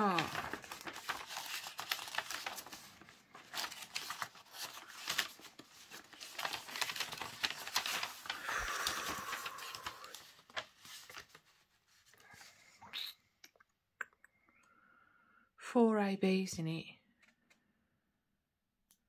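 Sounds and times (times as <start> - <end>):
paper rustling and crinkling: 0.0 - 12.5.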